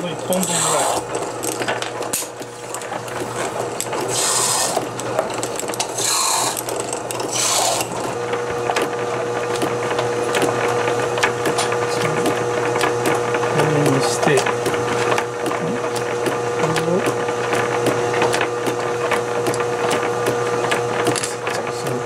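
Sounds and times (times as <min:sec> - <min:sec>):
bench lathe humming: 0:00.0 - 0:22.0
hissing scrapes: 0:00.3 - 0:01.2, 0:04.0 - 0:05.0, 0:05.9 - 0:06.7, 0:07.3 - 0:08.0.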